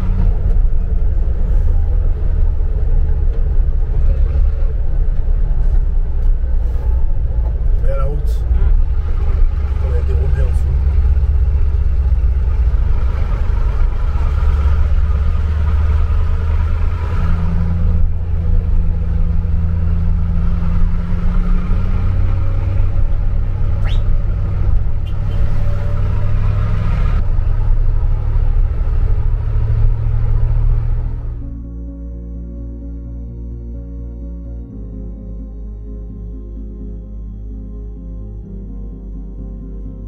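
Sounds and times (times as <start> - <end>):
diesel truck engine under load: 0.0 - 31.5.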